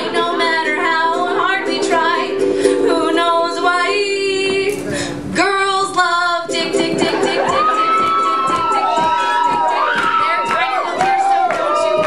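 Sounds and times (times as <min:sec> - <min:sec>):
woman singing: 0:00.0 - 0:12.0
audience cheering: 0:07.0 - 0:12.0.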